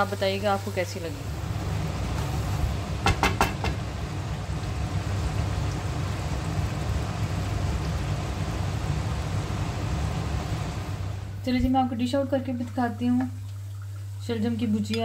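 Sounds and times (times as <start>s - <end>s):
food sizzling in a pot: 0.0s - 12.0s.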